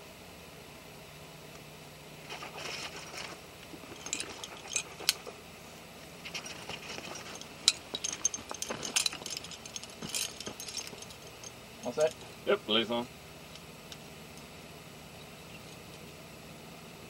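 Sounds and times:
carabiners clinking and jangling: 0:02.3 - 0:05.4, 0:06.2 - 0:12.5.

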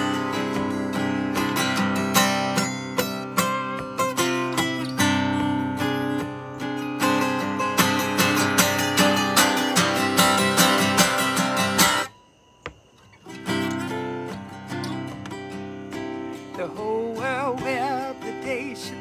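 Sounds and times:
acoustic guitar strummed: 0:00.0 - 0:19.0.

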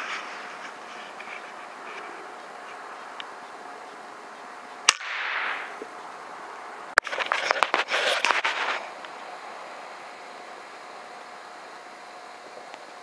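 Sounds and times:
rustle: 0:00.0 - 0:13.0
air rifle shot: 0:04.9 - 0:05.8.

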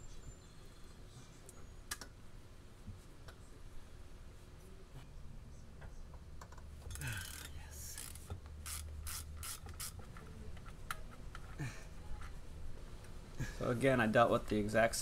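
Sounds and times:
ratchet clicking: 0:07.2 - 0:10.0.

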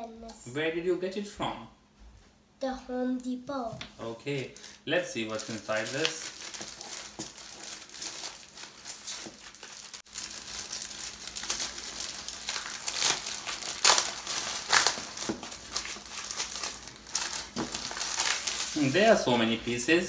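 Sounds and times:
plastic bag crinkling: 0:04.4 - 0:19.2.

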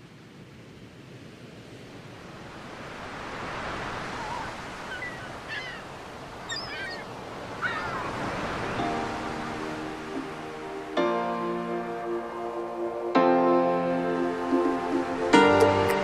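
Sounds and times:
sea waves breaking on a beach: 0:00.0 - 0:16.0
birds chirping: 0:03.5 - 0:10.8.

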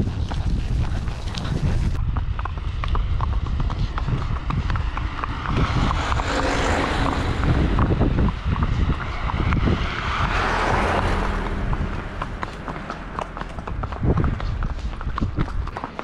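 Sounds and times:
low steady rumble: 0:00.0 - 0:15.7
horse hooves clip-clopping: 0:00.0 - 0:16.0.

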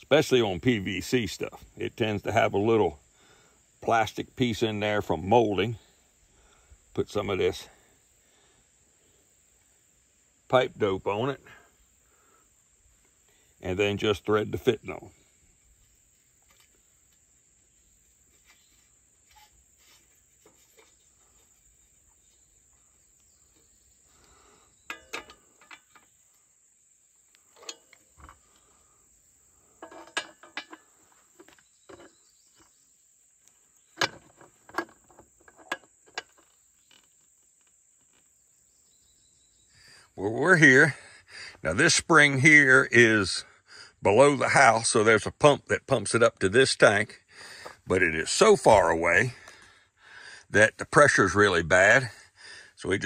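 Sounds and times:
pliers and metal fitting clinking: 0:24.9 - 0:26.2, 0:29.8 - 0:32.2.

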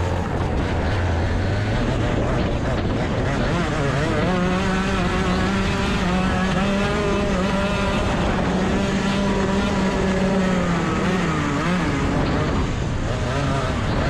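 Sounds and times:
racing kart engine: 0:00.0 - 0:14.0
track noise: 0:00.0 - 0:14.0
wind noise: 0:00.0 - 0:14.0.

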